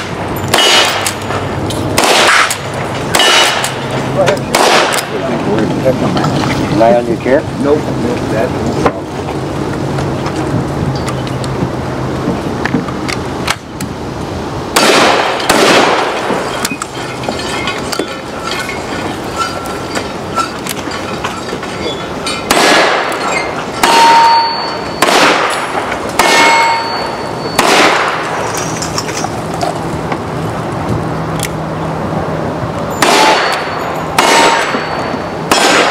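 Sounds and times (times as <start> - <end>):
shotgun blasts: 0.0 - 1.2, 2.0 - 3.8, 4.5 - 5.2, 14.7 - 16.4, 22.5 - 23.2, 23.8 - 27.0, 27.6 - 28.4, 33.0 - 34.9, 35.5 - 35.9
steel targets clanging: 0.0 - 7.4, 14.7 - 29.8, 32.9 - 35.9.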